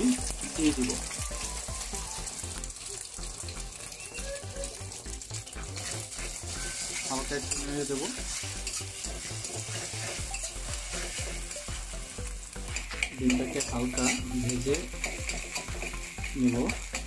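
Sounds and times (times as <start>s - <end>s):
egg sizzling in oil: 0.0s - 17.0s
metal spatula scraping pan: 5.7s - 11.9s, 12.8s - 17.0s.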